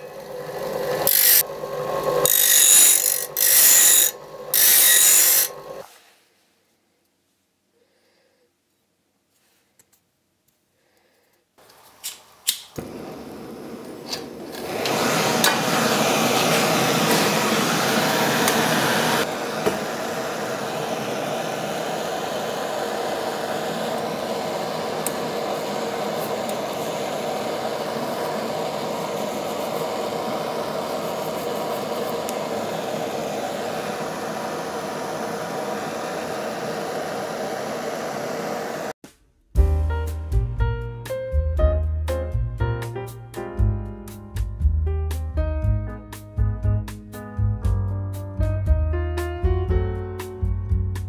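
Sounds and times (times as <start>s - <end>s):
gas burner hissing: 11.7s - 39.0s
stove igniter clicks: 12.0s - 12.8s.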